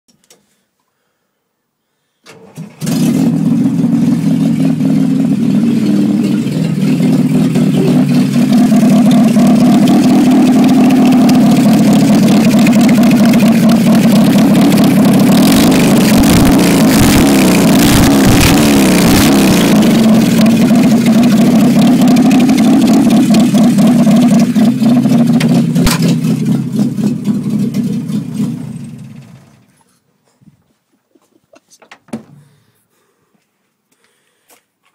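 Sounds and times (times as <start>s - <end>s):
engine running without exhaust: 2.8s - 29.8s.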